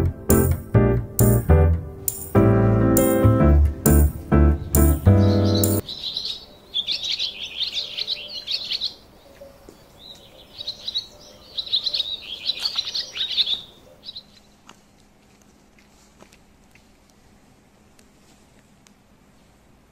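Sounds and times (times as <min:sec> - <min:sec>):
songbird twittering: 0:04.6 - 0:14.4.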